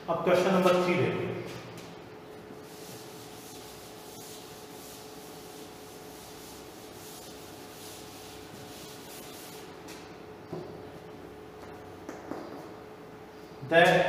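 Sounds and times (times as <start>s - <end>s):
duster wiping chalkboard: 1.8s - 10.2s.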